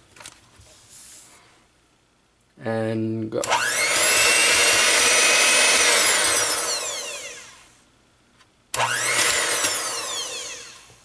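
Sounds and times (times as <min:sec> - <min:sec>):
hand mixer motor whining: 0:03.5 - 0:07.8, 0:08.8 - 0:11.0.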